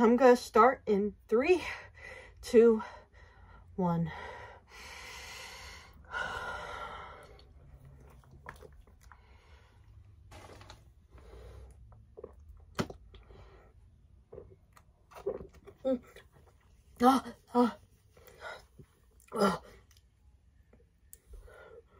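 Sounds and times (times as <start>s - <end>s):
breathing: 1.6s - 7.5s, 9.1s - 10.0s, 11.1s - 11.8s, 13.2s - 13.8s, 21.3s - 21.9s
person gulping soda: 7.2s - 10.5s, 11.6s - 17.0s.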